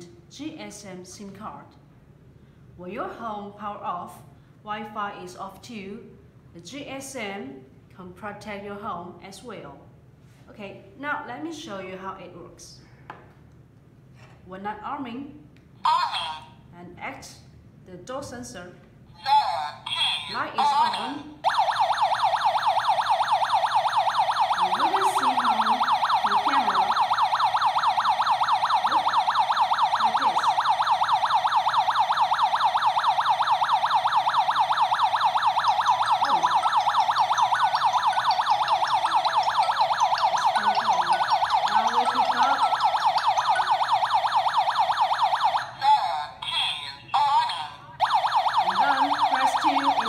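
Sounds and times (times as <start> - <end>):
alarm siren warbling: 20.6 - 46.6, 48.0 - 50.0.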